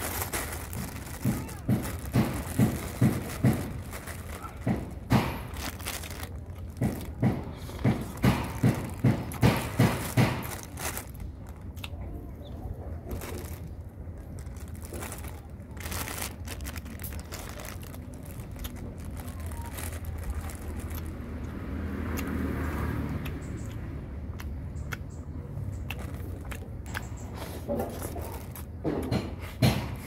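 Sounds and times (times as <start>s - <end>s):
plastic bag crinkling: 0.0s - 21.4s
chewing: 16.3s - 28.7s.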